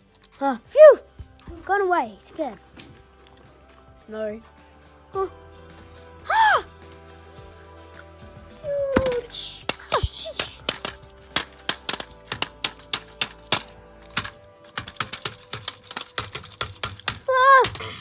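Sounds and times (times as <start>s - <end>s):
rapid sharp clicks: 9.6s - 17.8s.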